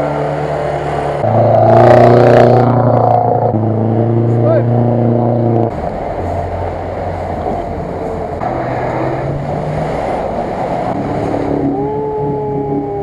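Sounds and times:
off-road vehicle engines under load: 0:00.0 - 0:12.2
water splashing and sloshing: 0:05.7 - 0:11.8.

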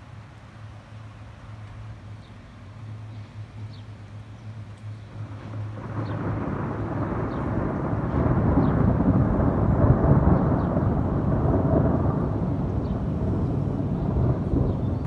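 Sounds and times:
rolling thunder rumble: 0:05.0 - 0:15.0.

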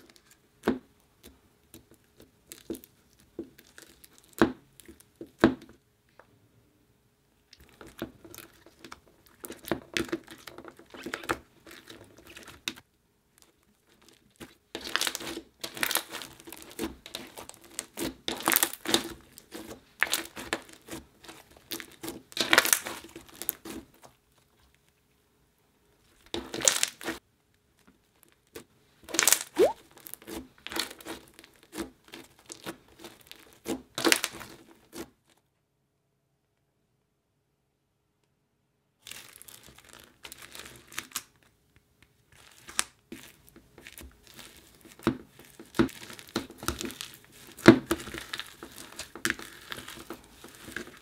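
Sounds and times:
slime sticky clicks and crackles: 0:13.4 - 0:23.8.

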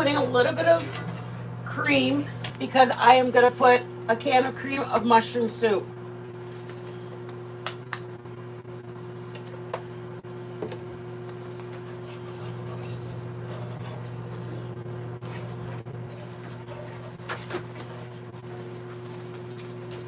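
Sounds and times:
steady low hum: 0:00.0 - 0:20.0
spoon stirring gravy in skillet: 0:09.2 - 0:20.0.

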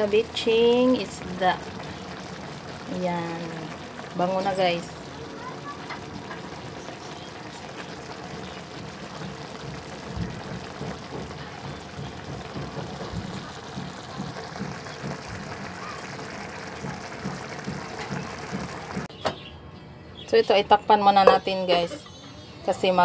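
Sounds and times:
sauce simmering with bubbling hiss: 0:00.0 - 0:19.1.

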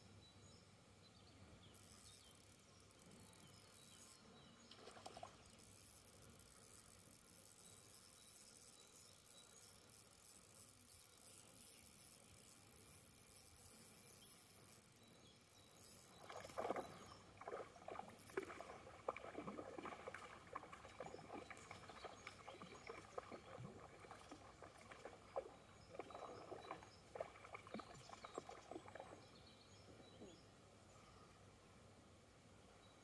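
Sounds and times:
water splashing and sloshing: 0:16.1 - 0:29.3.

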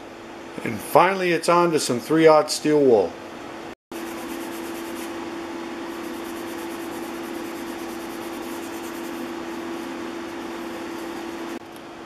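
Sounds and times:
steel wool rubbing on wood: 0:04.0 - 0:05.2, 0:05.9 - 0:11.6.

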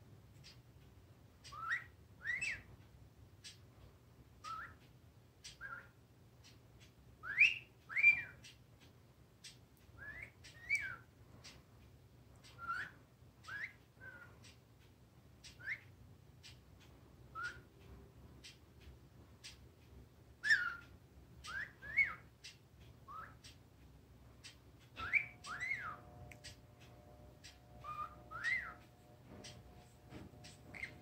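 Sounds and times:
parrot whistling: 0:01.5 - 0:02.7, 0:04.4 - 0:04.8, 0:07.2 - 0:08.4, 0:10.0 - 0:11.0, 0:12.6 - 0:14.3, 0:15.5 - 0:15.9, 0:17.3 - 0:17.7, 0:20.4 - 0:20.8, 0:21.4 - 0:22.3, 0:23.1 - 0:23.4, 0:25.0 - 0:26.6, 0:27.8 - 0:28.9, 0:30.5 - 0:31.0
faint clicks: 0:04.5 - 0:31.0.

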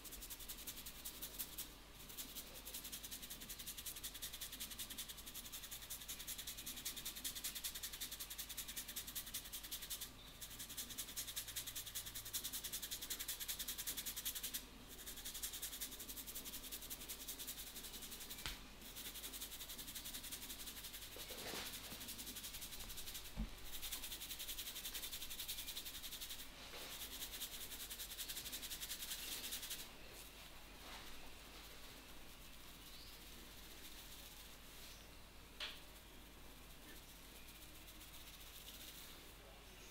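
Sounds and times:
hands rubbing hair: 0:16.7 - 0:34.9.

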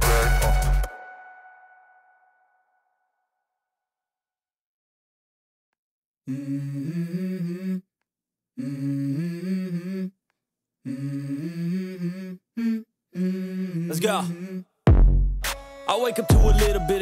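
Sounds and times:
wordless hummed vocal melody: 0:10.9 - 0:14.7.

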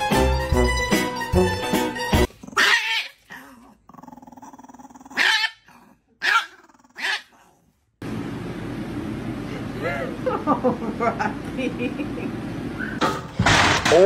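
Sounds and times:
background music: 0:00.0 - 0:02.3
small dog barking and growling: 0:02.3 - 0:07.8.

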